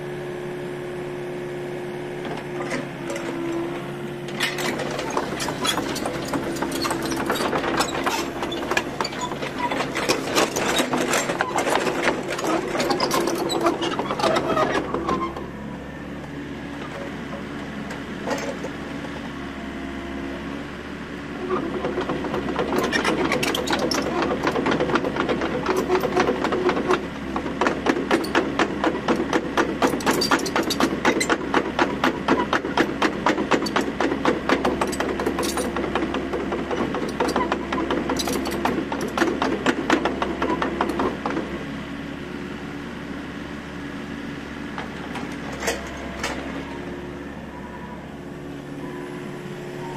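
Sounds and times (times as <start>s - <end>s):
excavator diesel engine under load: 0.0s - 49.9s
fast mechanical rattle: 4.3s - 15.3s, 22.3s - 41.4s.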